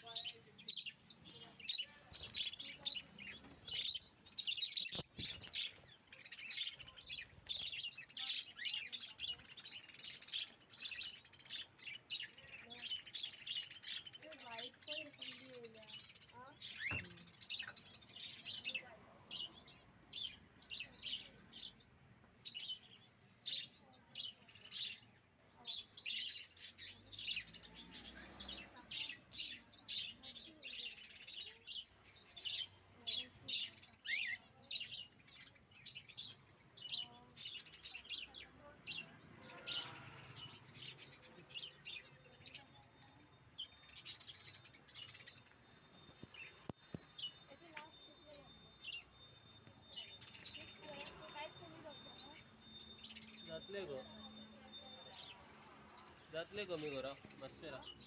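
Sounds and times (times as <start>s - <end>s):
pet birds chirping: 0.0s - 58.0s
faint steady high tone: 41.9s - 56.4s.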